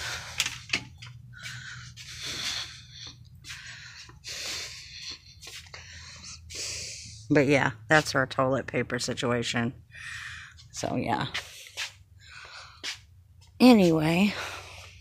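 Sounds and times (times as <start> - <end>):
breathing into phone microphone: 0.0 - 7.3.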